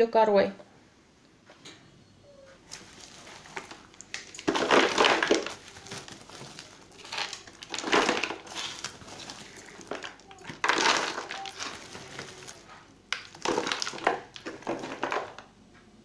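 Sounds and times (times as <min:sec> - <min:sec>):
bark poured into plastic bottle: 0:03.2 - 0:15.4.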